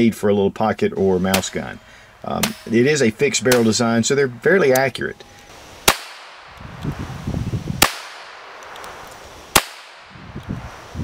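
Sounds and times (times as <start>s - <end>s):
pistol shots: 5.8s - 6.6s, 7.8s - 10.2s.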